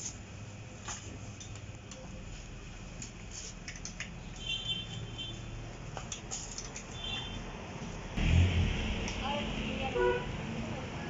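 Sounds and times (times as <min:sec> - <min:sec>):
tools clicking and tapping: 0:03.0 - 0:04.5, 0:05.9 - 0:07.3.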